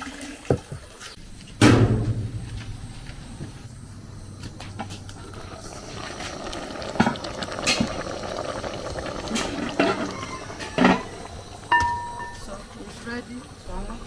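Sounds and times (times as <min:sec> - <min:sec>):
sharp knocks: 0:01.6 - 0:02.8
pot bubbling at boil: 0:03.8 - 0:14.0.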